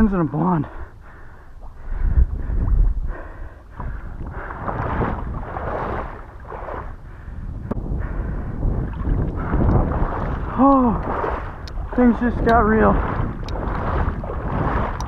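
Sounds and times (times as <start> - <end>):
wind rumble on microphone: 0.0 - 15.0
water sloshing: 1.0 - 7.0, 8.7 - 15.0.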